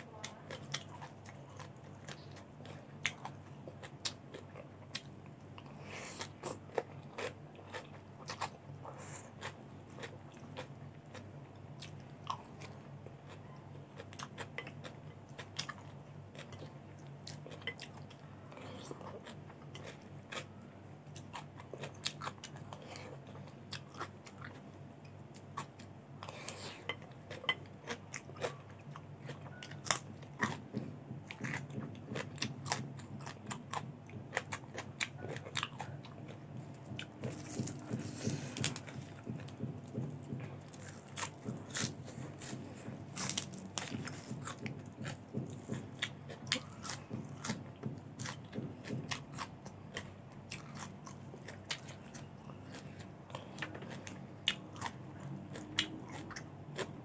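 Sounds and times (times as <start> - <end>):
crunchy chewing: 0.1 - 57.0.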